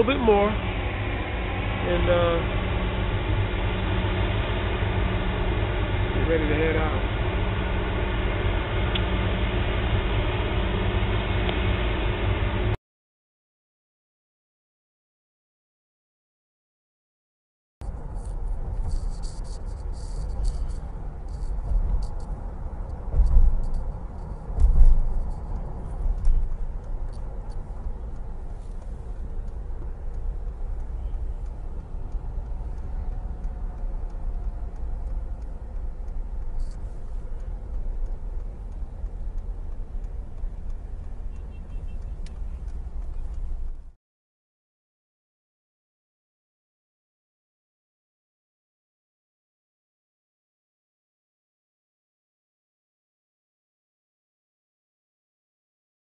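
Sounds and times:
road traffic: 0.0 - 12.8, 17.8 - 44.0.

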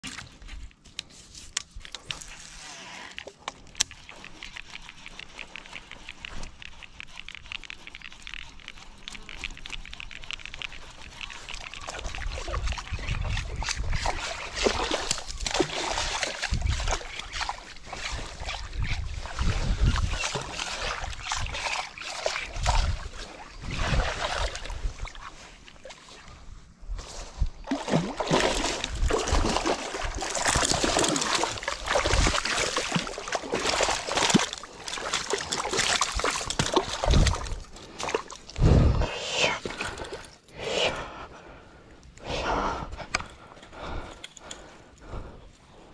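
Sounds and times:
water splashing and sloshing: 0.0 - 40.5
fishing reel ticking: 1.8 - 23.3.

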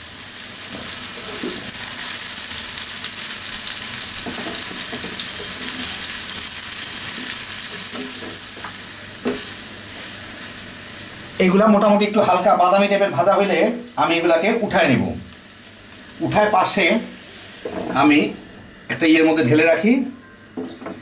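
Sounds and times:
food sizzling in hot oil: 0.0 - 18.6.

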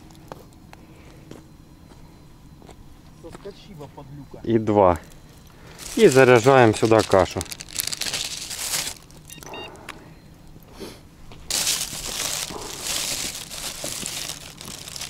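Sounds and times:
plastic bag crinkling: 5.4 - 9.4, 11.5 - 15.0.

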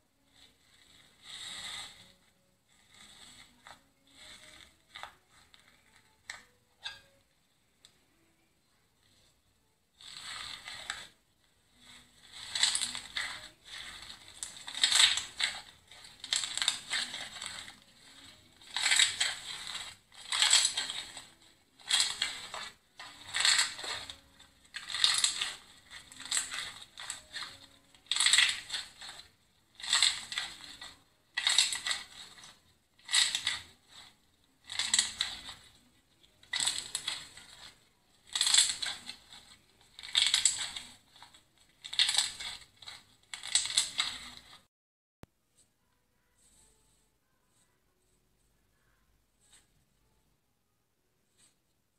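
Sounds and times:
slime crackling and crunching: 0.2 - 7.1, 10.0 - 44.7.

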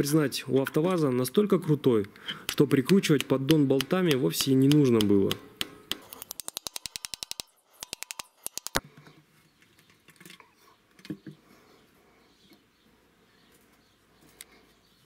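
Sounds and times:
rapid light tool tapping: 2.4 - 8.8.

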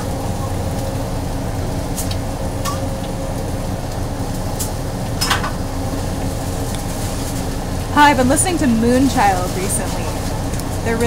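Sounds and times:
kitchen ventilation hum: 0.0 - 11.0
clinks and clatters of utensils: 5.2 - 5.6.

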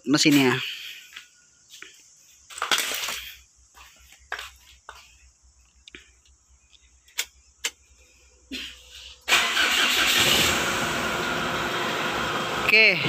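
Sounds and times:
engine starting and idling: 9.2 - 13.0.

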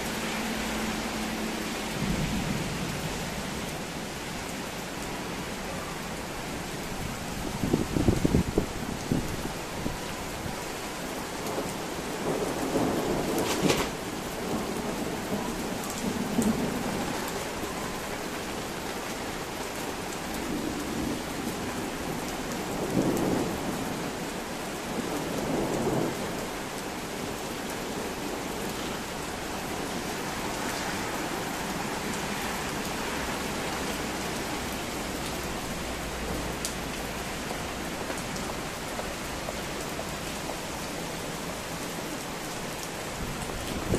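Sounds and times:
steady rain: 0.0 - 43.9
low rolls of thunder: 1.9 - 3.5.

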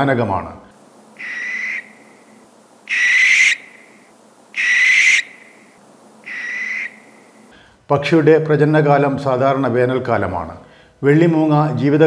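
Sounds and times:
barn owl screeching: 1.1 - 7.5.

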